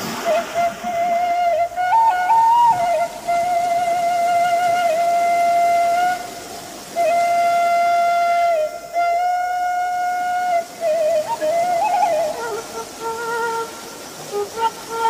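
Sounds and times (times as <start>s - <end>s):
flute-like wind instrument melody: 0.0s - 15.0s.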